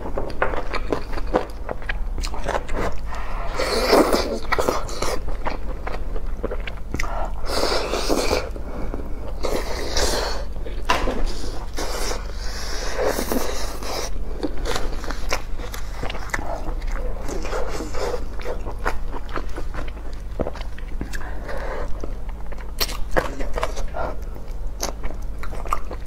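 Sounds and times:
wet chewing and smacking: 0:00.0 - 0:26.0.

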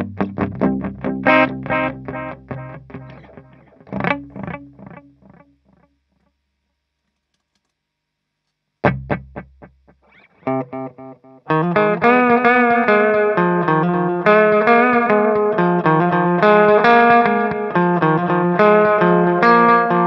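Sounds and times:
electric guitar with echo delay: 0:00.0 - 0:05.4, 0:10.0 - 0:20.0
electric guitar chords: 0:00.0 - 0:05.5, 0:08.8 - 0:20.0.

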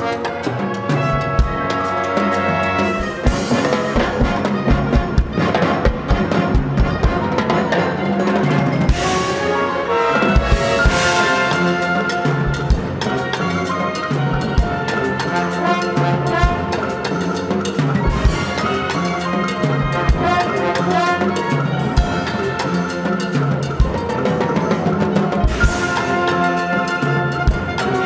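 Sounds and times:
brass and woodwind chords: 0:00.0 - 0:28.0.

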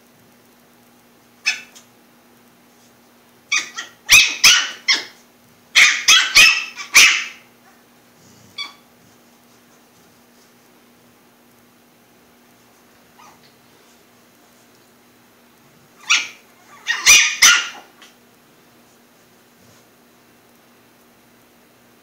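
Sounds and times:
puppy yapping: 0:01.4 - 0:01.9, 0:03.5 - 0:05.2, 0:05.8 - 0:07.8, 0:08.5 - 0:08.8, 0:13.2 - 0:13.5, 0:16.0 - 0:18.2.

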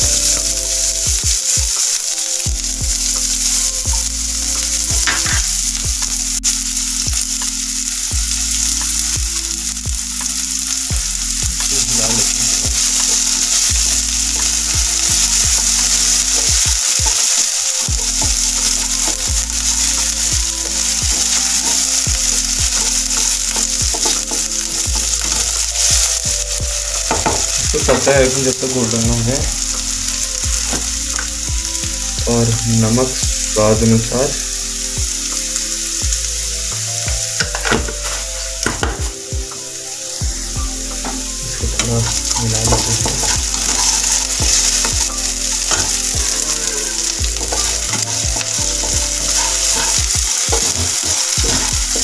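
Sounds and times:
vegetables sizzling in oil: 0:00.0 - 0:52.0
spatula scraping a pan: 0:42.1 - 0:52.0.

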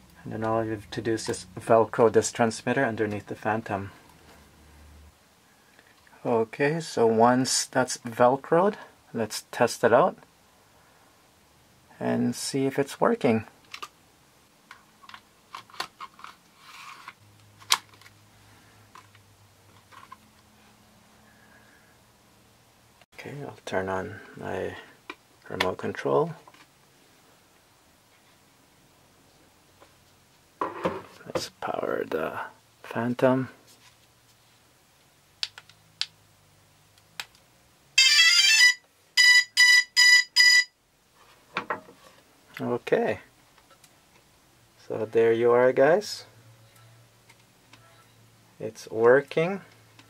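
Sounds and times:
short even beeps: 0:39.2 - 0:40.7, 0:47.8 - 0:48.2.

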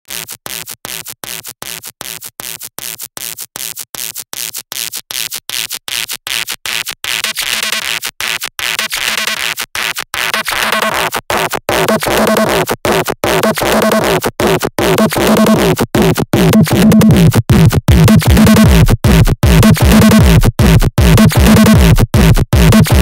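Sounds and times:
stuttering noisy synth: 0:06.8 - 0:23.0
pitched synth notes: 0:14.8 - 0:23.0.

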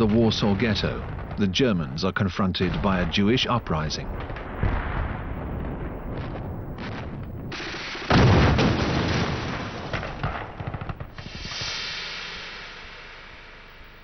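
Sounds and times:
loud explosion: 0:00.0 - 0:13.9
battle rumble: 0:00.0 - 0:14.0
gunfire cracks: 0:02.6 - 0:13.5.

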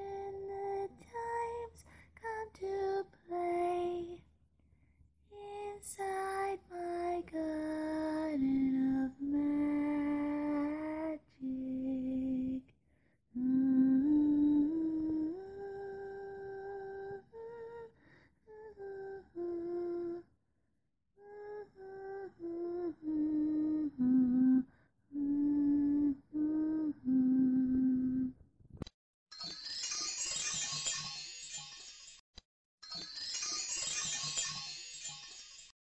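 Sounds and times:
high voice singing wordlessly: 0:00.0 - 0:04.2, 0:05.4 - 0:12.6, 0:25.2 - 0:28.3.

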